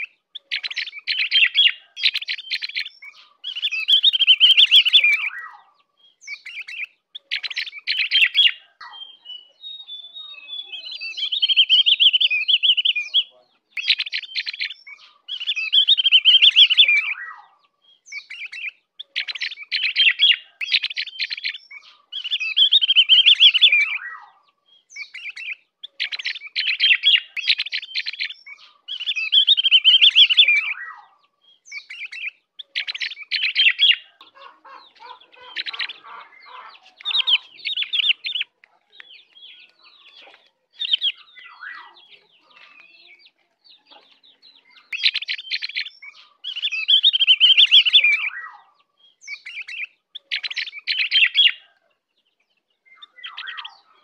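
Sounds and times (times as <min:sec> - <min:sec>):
songbird singing: 0:00.0 - 0:54.0.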